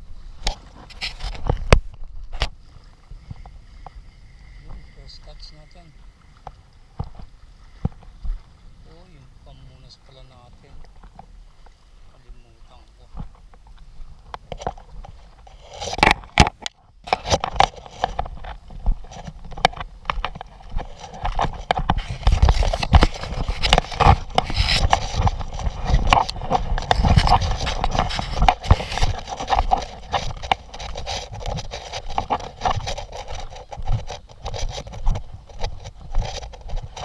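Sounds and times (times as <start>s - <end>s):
camera mount rubbing on clothing: 0.5s - 1.6s, 14.5s - 37.0s
footsteps through grass: 17.8s - 37.0s.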